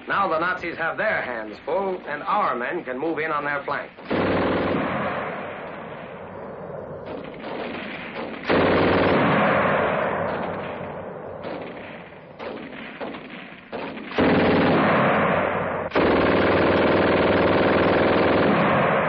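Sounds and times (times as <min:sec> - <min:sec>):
machine-gun fire: 0:03.9 - 0:19.0.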